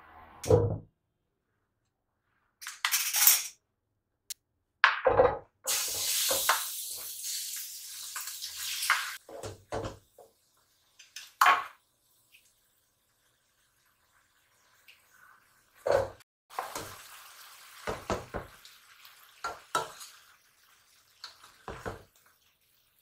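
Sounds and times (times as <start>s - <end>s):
pots and dishes clunking: 15.9s - 16.2s.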